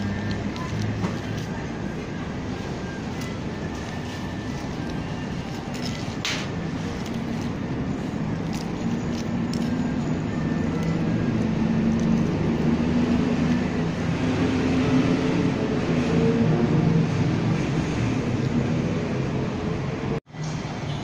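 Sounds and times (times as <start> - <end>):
vehicle engine running: 0.0 - 16.2
traffic hum: 0.0 - 21.0.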